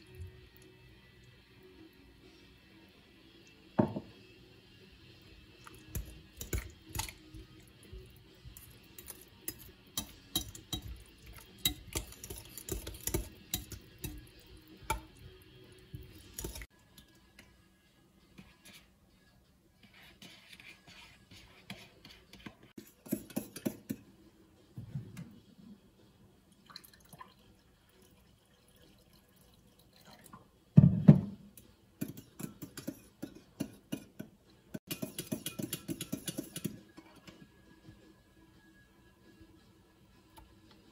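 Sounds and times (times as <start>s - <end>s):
spoon clinking against glass bowl: 8.5s - 15.4s, 34.8s - 36.8s.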